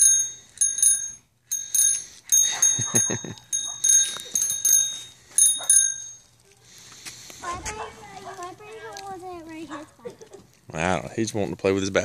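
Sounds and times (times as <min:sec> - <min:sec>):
bicycle bell dings: 0:00.0 - 0:06.3.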